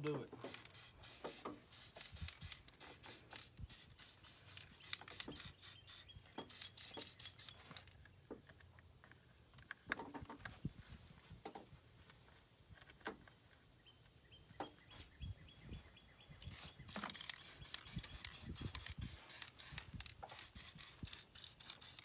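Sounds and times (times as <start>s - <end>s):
aerosol can spraying in spurts: 0.4s - 7.9s, 16.4s - 22.0s.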